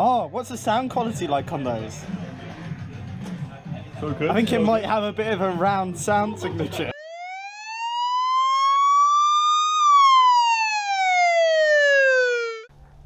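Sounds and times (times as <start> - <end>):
police siren wail: 6.9 - 12.7.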